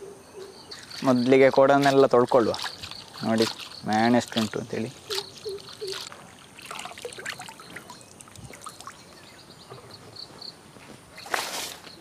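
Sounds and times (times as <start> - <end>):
water splashing and trickling: 0.7 - 9.9.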